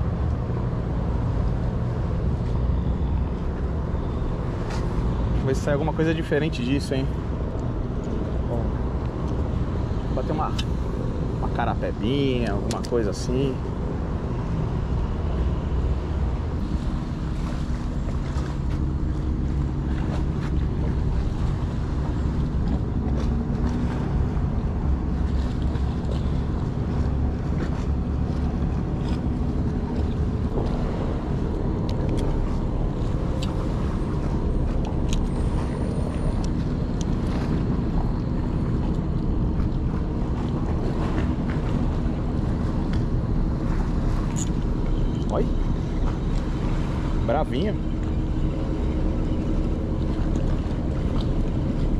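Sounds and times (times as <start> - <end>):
boat engine droning: 0.0 - 51.9.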